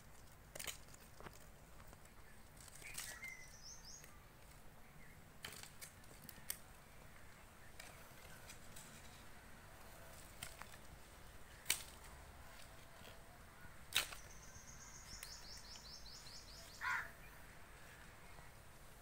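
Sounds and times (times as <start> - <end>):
bird twittering: 2.9 - 4.2
knife snapping off shoots: 13.9 - 14.2.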